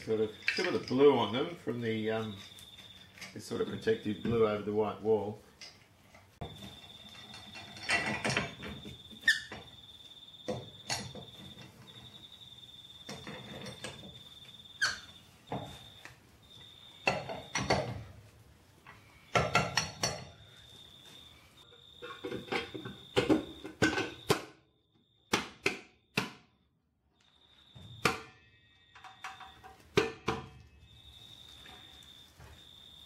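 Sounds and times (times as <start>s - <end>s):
wrench clanking on wheel nuts: 6.5s - 9.6s.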